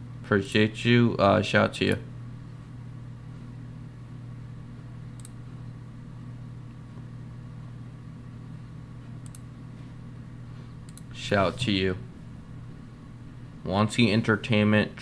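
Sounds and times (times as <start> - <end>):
low room hum: 0.0 - 15.0
mouse clicks: 5.2 - 5.4, 9.2 - 9.5, 10.9 - 11.1.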